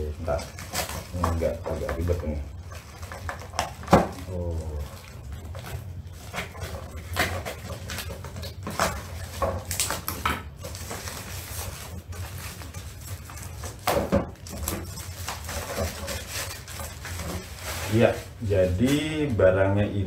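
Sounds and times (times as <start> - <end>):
plastic wrapping crinkling: 0.0 - 19.8
packing tape ripping: 0.3 - 2.1, 3.0 - 19.0.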